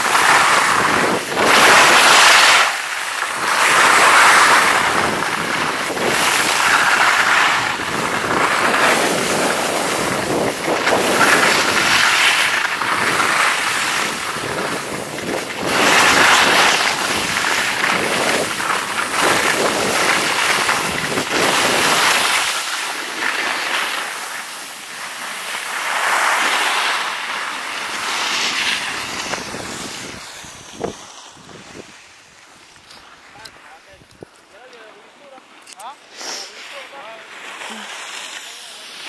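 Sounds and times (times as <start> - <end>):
wind on microphone: 0.0 - 22.6, 28.1 - 32.0
skis scraping over snow: 0.0 - 39.0.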